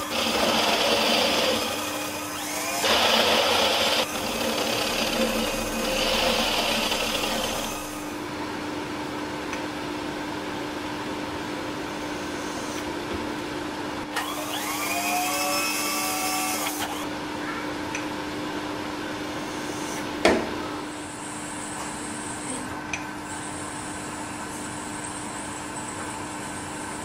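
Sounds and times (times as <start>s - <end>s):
milling machine humming: 0.0s - 8.6s
rising whine: 4.1s - 8.4s.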